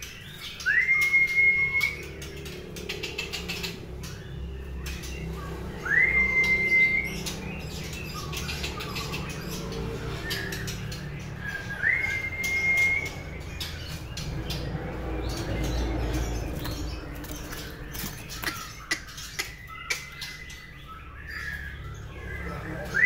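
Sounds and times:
bird singing long whistles: 0.5 - 2.0, 5.8 - 7.4, 11.4 - 13.3.

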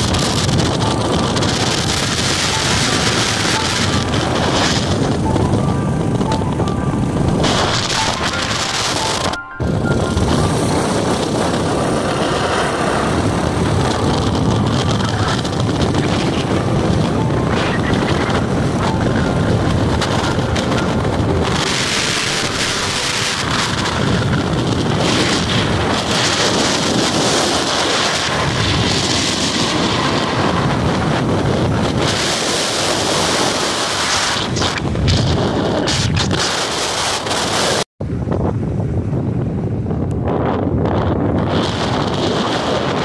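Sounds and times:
motorcycle engine: 0.0 - 32.2
road noise: 0.0 - 43.0
wind buffeting microphone: 0.0 - 43.0.

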